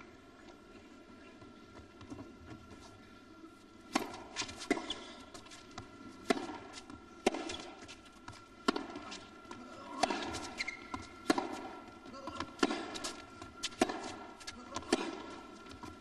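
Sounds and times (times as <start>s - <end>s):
rackets hitting tennis ball: 3.9s - 16.0s
tennis ball bouncing: 3.9s - 16.0s.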